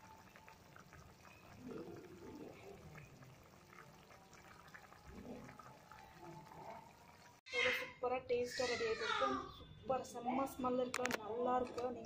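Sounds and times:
thick curry bubbling: 0:00.0 - 0:07.5.

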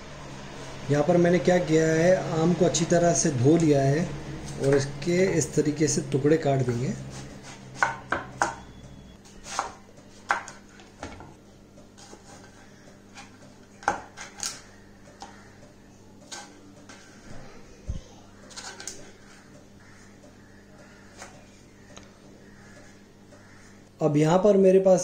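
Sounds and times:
knife chopping on wooden board: 0:07.1 - 0:08.6, 0:09.4 - 0:11.2, 0:13.2 - 0:14.5.

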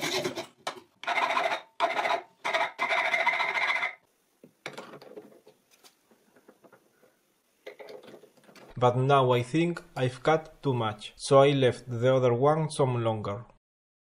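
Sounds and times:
hacksaw cutting metal rod: 0:00.0 - 0:03.1.

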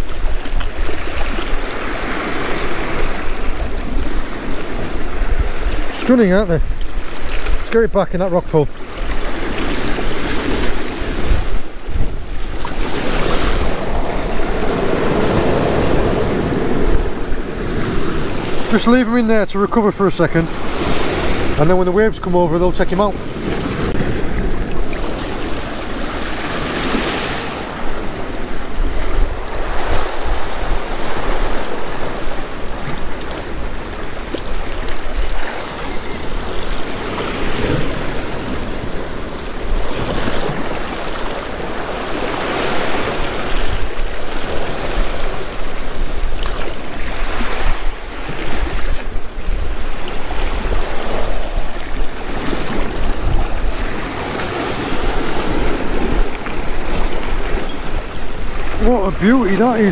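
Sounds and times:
waves breaking on rocky shore: 0:00.0 - 0:59.9
wind buffeting microphone: 0:00.0 - 0:59.9.

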